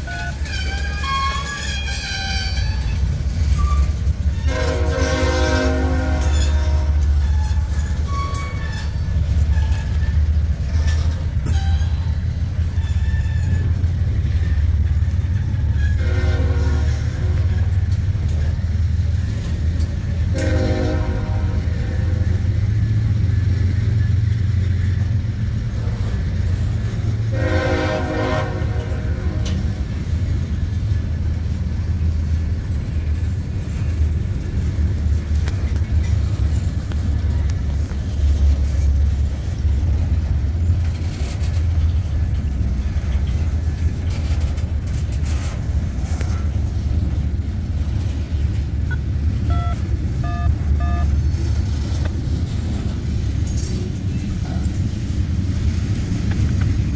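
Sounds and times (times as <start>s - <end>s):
freight train rumbling past: 0.0s - 56.9s
train horn blasts: 4.4s - 8.7s, 15.7s - 17.7s, 20.3s - 22.5s, 27.3s - 29.8s, 49.5s - 51.1s.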